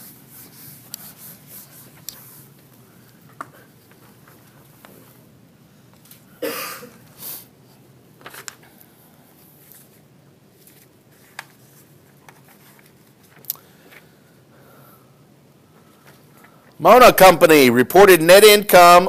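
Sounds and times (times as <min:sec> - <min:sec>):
paper rustling: 0:08.2 - 0:08.8, 0:09.4 - 0:14.2.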